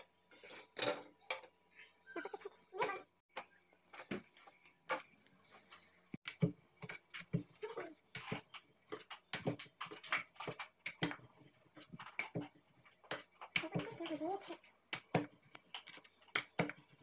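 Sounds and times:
kitchen items knocking and clicking: 0:00.0 - 0:01.6, 0:06.2 - 0:17.0.

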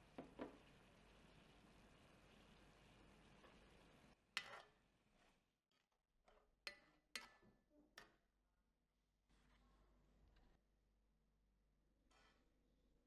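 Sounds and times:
sauce simmering hiss: 0:00.0 - 0:04.2.

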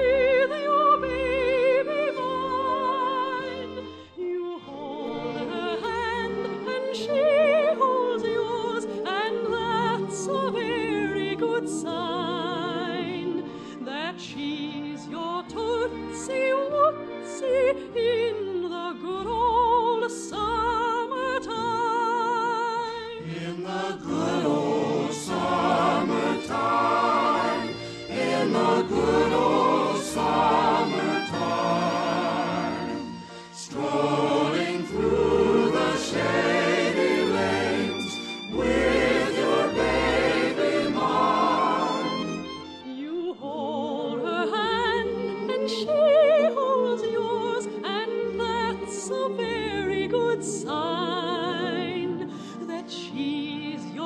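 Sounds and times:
orchestral accompaniment: 0:00.0 - 0:22.4, 0:23.1 - 0:54.0
choir singing: 0:00.0 - 0:54.0.

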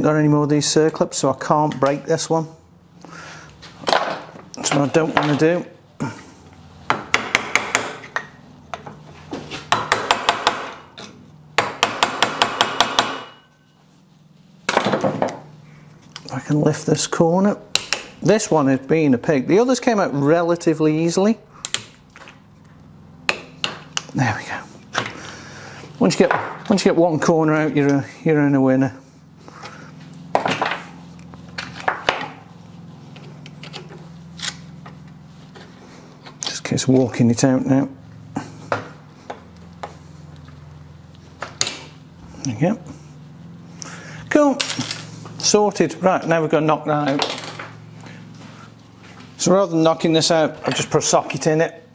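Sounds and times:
steady low hum: 0:00.0 - 0:51.9
metal tools clicking and scraping: 0:33.2 - 0:34.7.

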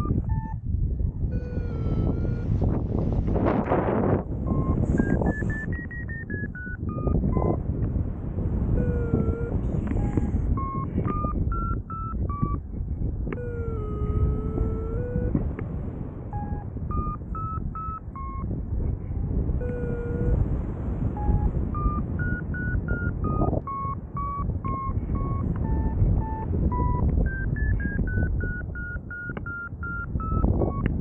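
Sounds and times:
variometer beeping: 0:00.0 - 0:00.6, 0:01.3 - 0:02.5, 0:04.5 - 0:07.6, 0:08.8 - 0:12.6, 0:13.3 - 0:15.6, 0:16.3 - 0:18.5, 0:19.6 - 0:20.4, 0:21.2 - 0:31.0
wind rushing over microphone: 0:00.0 - 0:31.0.

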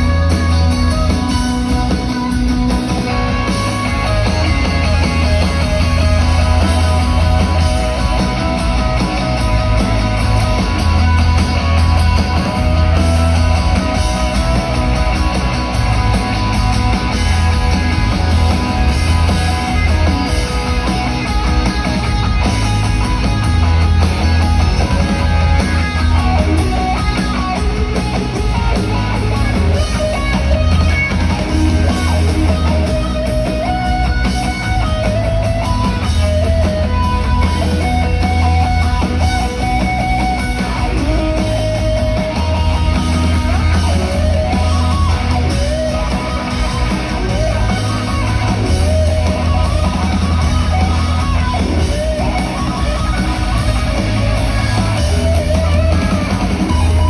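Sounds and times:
live rock band playing: 0:00.0 - 0:57.0.

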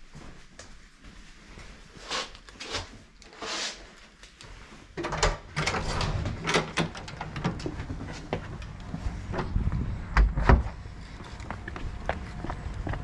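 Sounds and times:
low rumble: 0:07.4 - 0:13.0.

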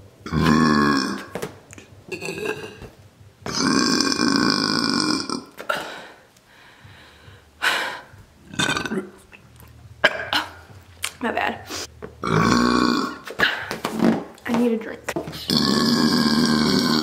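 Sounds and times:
woman burping into balloon: 0:00.2 - 0:01.4, 0:02.1 - 0:05.9, 0:08.5 - 0:09.2, 0:10.0 - 0:10.7, 0:12.2 - 0:14.2, 0:15.3 - 0:17.0.

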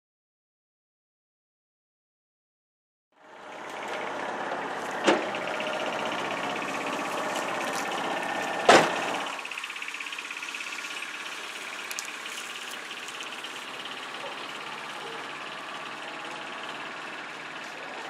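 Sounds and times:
utility vehicle engine running: 0:03.2 - 0:18.0
loud thumps: 0:08.3 - 0:09.3.

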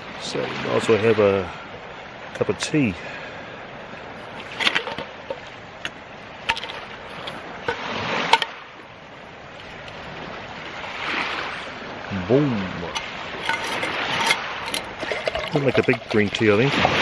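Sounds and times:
light metal clinks and knocks: 0:06.5 - 0:08.6, 0:12.9 - 0:16.5.

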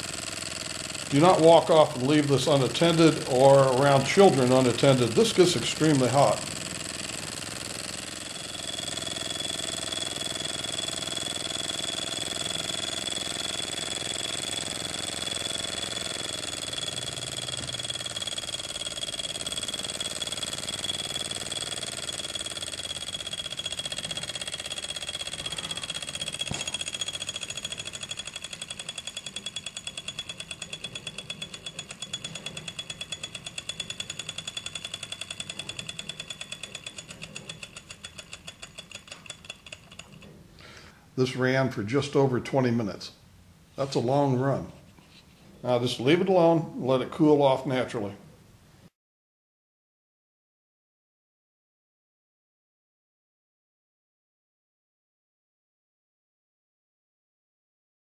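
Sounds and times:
miniature steam engine clattering: 0:00.0 - 0:40.3.

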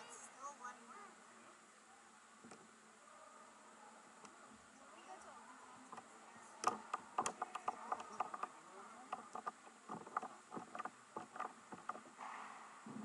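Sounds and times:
hockey sticks and puck clicking: 0:06.0 - 0:08.5.

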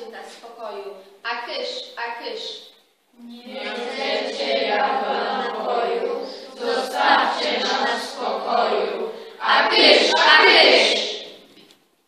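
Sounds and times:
children chanting verse in unison: 0:03.2 - 0:11.5.

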